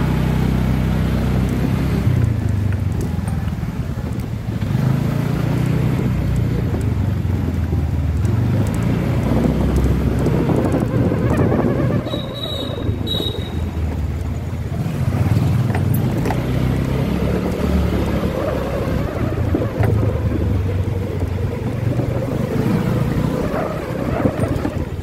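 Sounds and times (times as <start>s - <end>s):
motorcycle engine running: 0.0s - 25.0s
wind on microphone: 5.8s - 25.0s.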